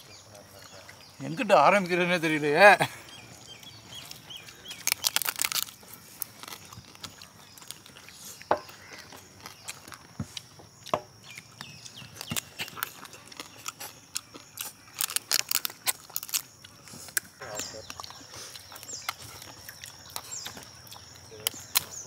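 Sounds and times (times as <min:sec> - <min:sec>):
crab shell cracking: 0:03.5 - 0:10.1, 0:11.2 - 0:22.0.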